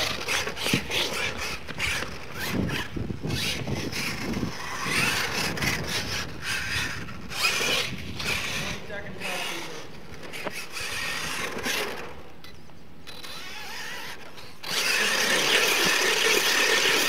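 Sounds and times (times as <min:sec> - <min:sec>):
tyres scrabbling in loose dirt: 0:00.0 - 0:12.2
toy truck motor whining: 0:00.0 - 0:17.0.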